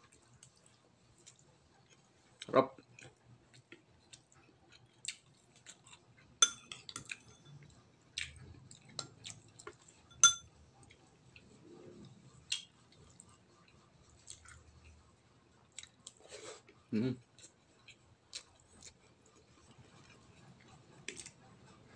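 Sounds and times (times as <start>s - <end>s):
person chewing: 0.1s - 7.4s, 8.2s - 9.9s, 12.4s - 15.0s, 15.7s - 16.7s, 17.4s - 21.4s
dishes clicking: 6.4s - 7.5s, 10.1s - 10.4s.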